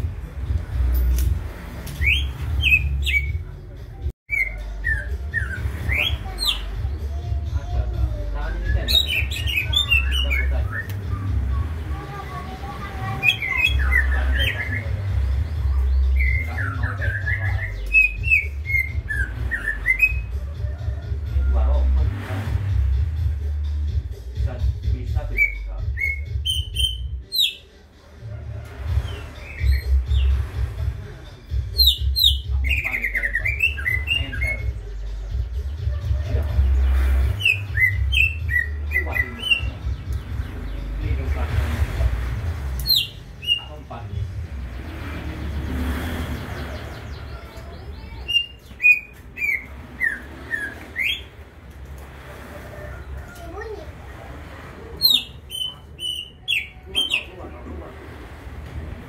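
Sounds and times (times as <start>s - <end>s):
bird singing whistled phrases: 2.0s - 3.4s, 16.1s - 20.3s, 25.3s - 27.6s, 42.9s - 43.7s, 48.1s - 51.3s, 55.0s - 57.3s.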